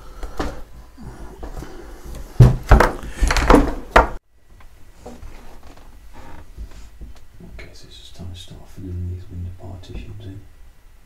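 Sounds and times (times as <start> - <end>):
wooden knocks and scraping thumps: 1.4 - 4.2.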